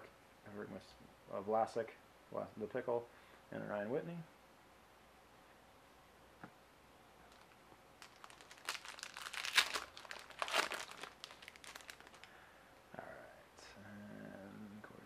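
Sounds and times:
foil wrapper crinkling and tearing: 7.3 - 12.3.

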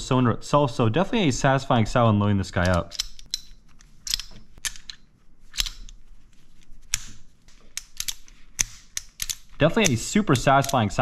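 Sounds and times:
sharp metallic clicks: 6.9 - 11.0.

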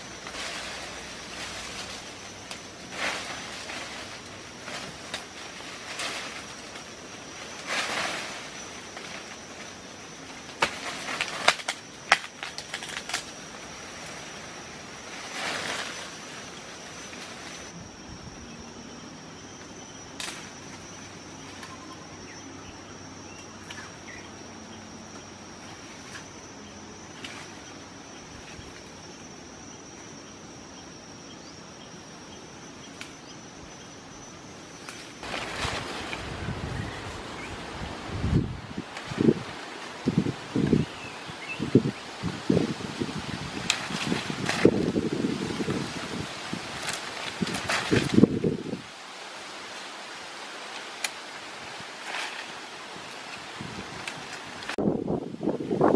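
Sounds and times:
leafy branches rustling: 0.0 - 30.8, 31.6 - 55.9
high-pitched insect drone: 0.0 - 48.9
soft outdoor hiss: 0.0 - 55.9
twigs snapping and cracking: 10.5 - 13.4, 43.6 - 44.9, 46.7 - 48.4.

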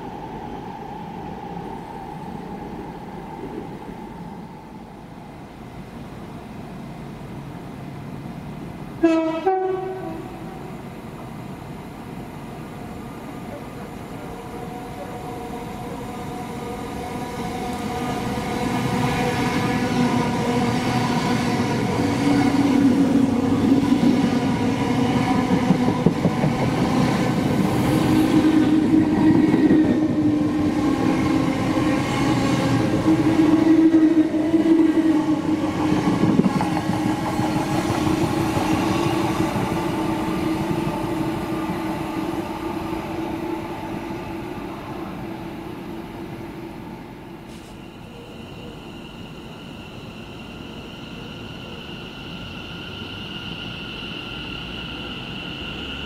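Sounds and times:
electric train passing: 0.0 - 56.0
two-tone train horn: 9.0 - 10.7.

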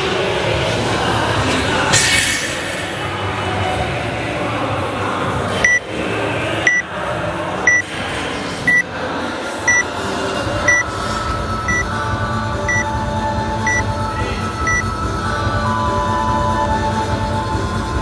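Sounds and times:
timer beeping: 10.7 - 10.9, 11.7 - 11.9, 12.7 - 12.9, 13.7 - 13.9, 14.6 - 14.9.

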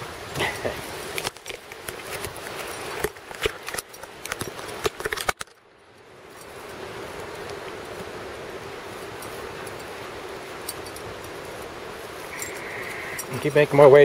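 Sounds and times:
steady outdoor hiss: 0.0 - 14.0.

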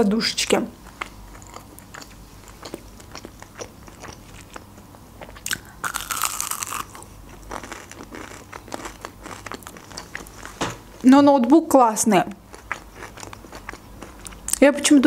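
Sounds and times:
soft chewing: 0.8 - 10.6, 12.3 - 14.6
loud crunchy bite: 5.2 - 10.3.

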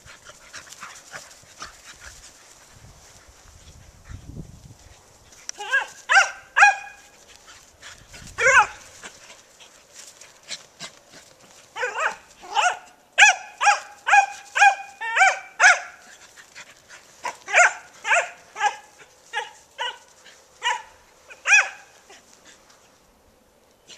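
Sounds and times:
dogs barking: 5.6 - 7.1, 8.4 - 8.8, 11.7 - 16.1, 17.2 - 22.0.

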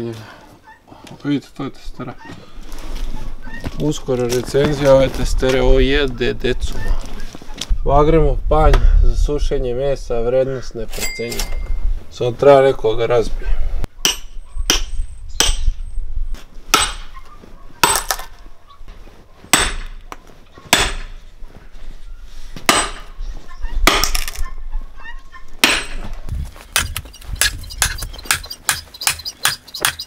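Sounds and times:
axe chopping wooden stump: 16.7 - 17.1, 17.8 - 18.3, 19.5 - 20.0, 20.7 - 21.2, 22.7 - 23.1, 23.8 - 24.4, 25.6 - 26.1, 26.7 - 30.0.

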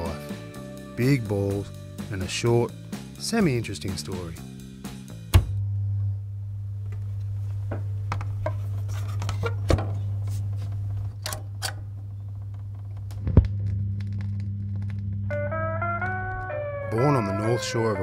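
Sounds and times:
low film soundtrack hum: 0.0 - 18.0
film crackles and pops: 6.8 - 16.6.

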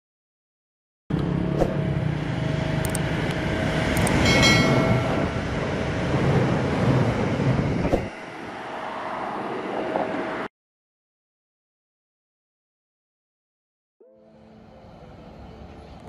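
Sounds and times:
diesel train rumbling past: 1.1 - 10.5, 14.2 - 16.0.

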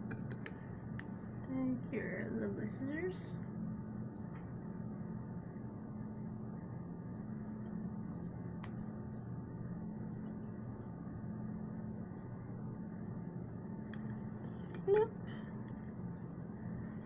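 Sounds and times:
low room hum: 0.0 - 17.0
small scissors snipping hair: 7.4 - 8.8.

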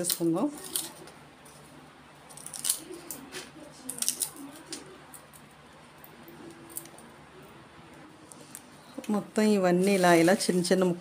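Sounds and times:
nuts crackling when crushed: 0.0 - 1.0, 2.2 - 7.1.

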